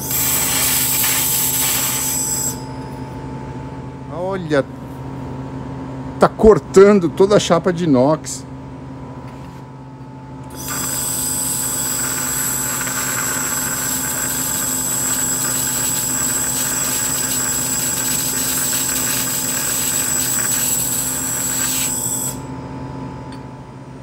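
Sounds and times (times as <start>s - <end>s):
laser welder hissing and whistling: 0.0s - 2.7s, 10.5s - 22.5s.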